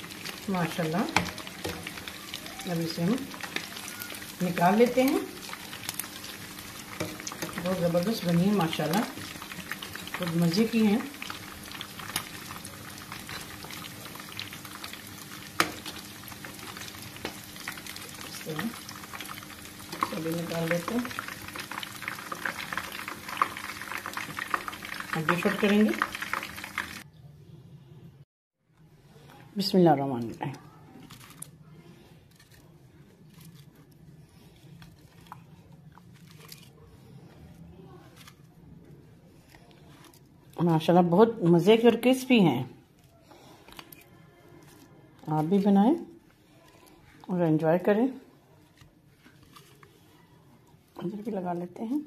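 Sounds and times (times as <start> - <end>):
deep-frying sizzle with pops: 0.0 - 27.1.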